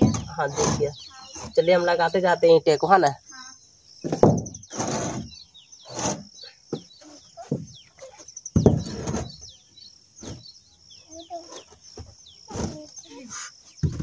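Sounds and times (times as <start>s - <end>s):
brick scraping: 0.0s - 1.6s, 4.1s - 6.4s, 7.4s - 9.5s
small birds chirping: 0.0s - 14.0s
bricks knocking on roof sheet: 4.0s - 5.3s, 8.5s - 9.4s, 13.8s - 14.0s.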